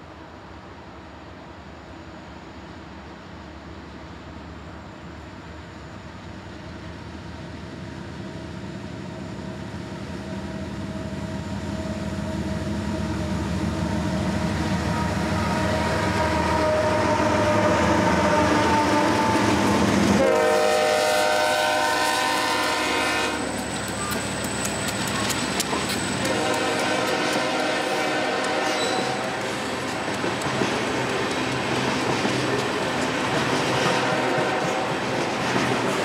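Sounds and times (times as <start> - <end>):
diesel locomotive engines: 0.0 - 36.0
locomotive air horn chord: 14.2 - 19.6, 20.2 - 23.5, 26.2 - 29.5.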